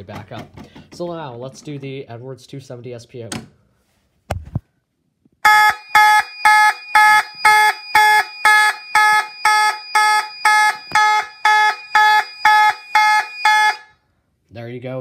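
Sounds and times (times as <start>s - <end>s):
fire alarm horn pulsing: 5.4s - 14.0s.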